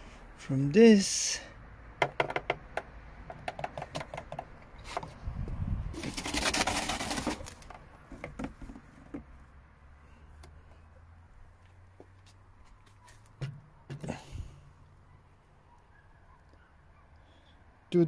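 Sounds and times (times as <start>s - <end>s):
small knocks: 2.0s - 5.1s, 7.6s - 9.4s, 13.3s - 14.1s
plastic hose and box handling: 3.3s - 5.2s, 5.9s - 9.4s
rustling scrape: 5.9s - 7.8s.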